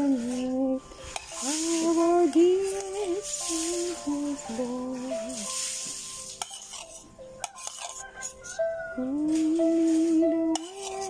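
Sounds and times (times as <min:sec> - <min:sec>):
background music: 0:00.0 - 0:11.0
spoon scraping plastic container: 0:01.1 - 0:02.0, 0:05.4 - 0:08.6, 0:10.5 - 0:11.0.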